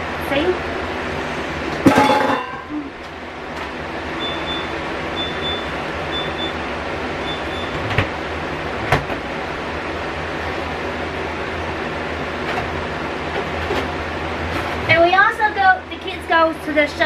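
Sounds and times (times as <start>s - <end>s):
steady hum: 0.0s - 5.2s
glass container clink: 1.9s - 2.7s.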